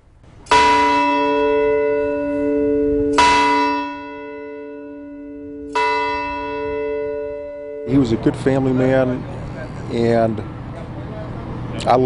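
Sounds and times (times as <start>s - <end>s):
large bell tolling: 0.3s - 9.5s.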